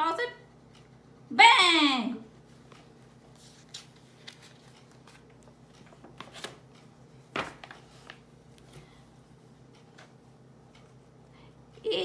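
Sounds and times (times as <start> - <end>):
book page turning: 2.7 - 6.6, 7.3 - 8.2.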